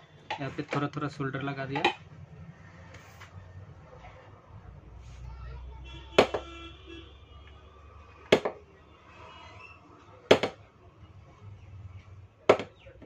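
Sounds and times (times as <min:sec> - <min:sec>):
hard object knocking: 0:01.8 - 0:02.0, 0:06.2 - 0:06.5, 0:10.3 - 0:10.6, 0:12.5 - 0:12.8.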